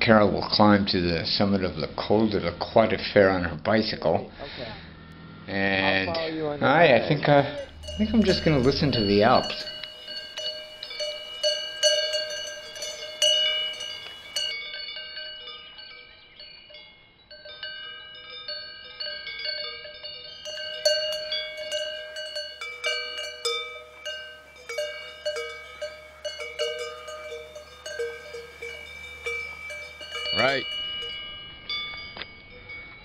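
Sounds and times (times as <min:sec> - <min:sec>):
cowbells clanking: 0:07.2 - 0:33.0.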